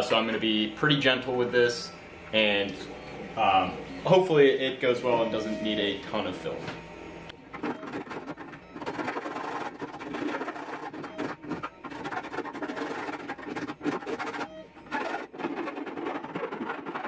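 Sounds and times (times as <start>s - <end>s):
hand file rasping on plastic: 8.0s - 17.0s.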